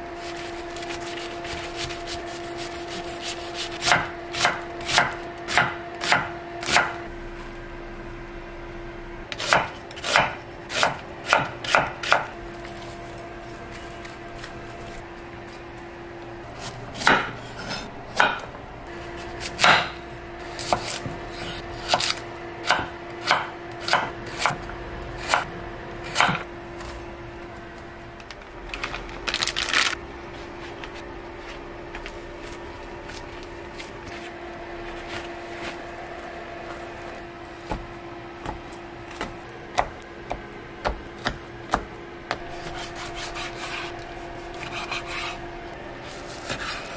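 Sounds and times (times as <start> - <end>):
faint hum: 0.0 - 46.9
knife chopping on wooden board: 1.5 - 7.0, 9.4 - 12.3, 16.6 - 18.5, 19.2 - 24.6, 25.2 - 26.4, 37.6 - 43.8.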